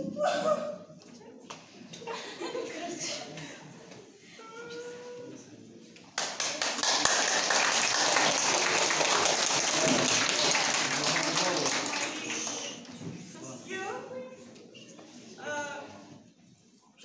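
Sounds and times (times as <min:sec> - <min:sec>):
audience clapping: 0:06.2 - 0:13.0.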